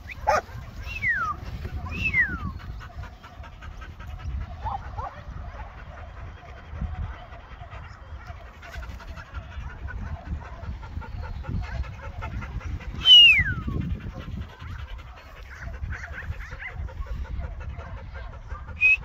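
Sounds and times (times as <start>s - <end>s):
wind rumble on microphone: 0.0s - 19.0s.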